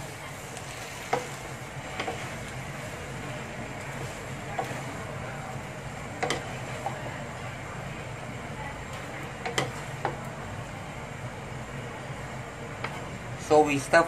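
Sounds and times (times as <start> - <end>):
stir-fry sizzling in a wok: 0.0 - 14.0
spatula knocking against pan: 6.2 - 6.5, 9.4 - 10.2.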